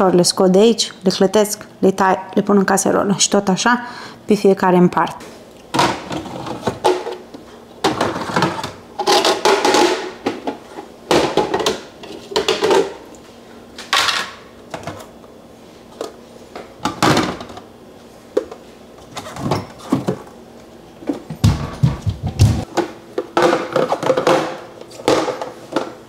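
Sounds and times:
plastic containers clattering: 7.8s - 13.0s, 21.1s - 26.0s.

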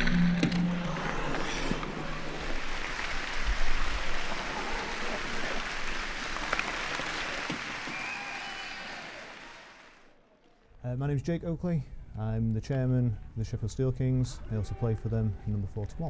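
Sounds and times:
music track: 0.0s - 3.0s
crowd applause: 0.0s - 10.2s.

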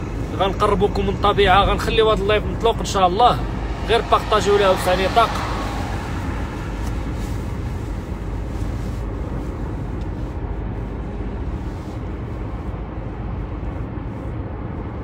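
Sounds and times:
car road noise from inside: 0.0s - 15.0s.

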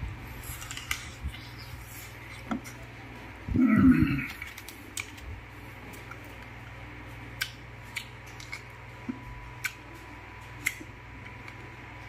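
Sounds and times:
steady low hum: 0.0s - 12.0s
eating clicks and smacks: 7.4s - 8.7s.

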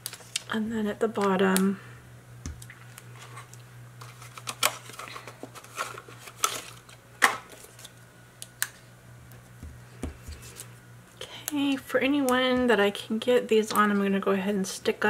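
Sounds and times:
plastic pack crackling: 0.0s - 1.7s, 2.6s - 8.7s.

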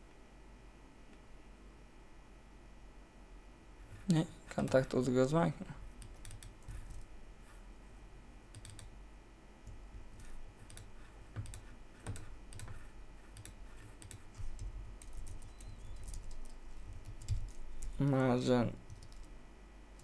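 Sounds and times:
low background hum: 0.0s - 20.0s
keyboard typing: 3.9s - 5.0s, 6.0s - 7.1s, 8.5s - 8.9s, 9.7s - 19.3s.

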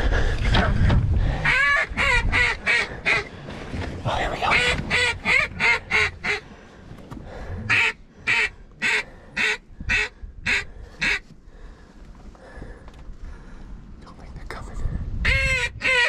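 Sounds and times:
duck call quacks: 4.5s - 6.4s, 7.7s - 11.2s, 15.3s - 16.0s.

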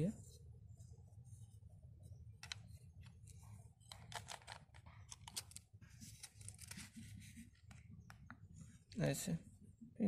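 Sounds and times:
plastic clicks and rattles: 3.8s - 5.7s.

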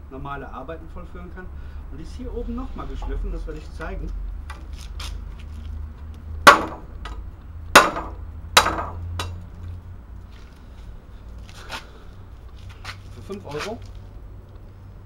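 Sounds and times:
machete chopping wood: 6.4s - 7.2s, 7.8s - 9.4s.

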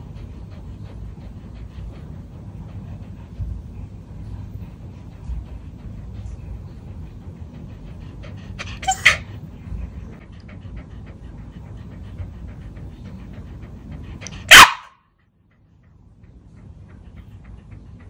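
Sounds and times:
puppy panting: 0.0s - 18.0s
puppy barking: 8.6s - 9.3s, 14.2s - 15.0s.

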